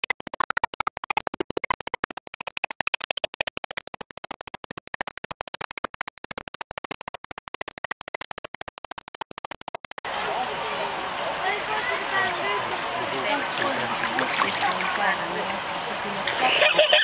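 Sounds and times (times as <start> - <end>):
stuttering electronic pulses: 0.0 - 10.1.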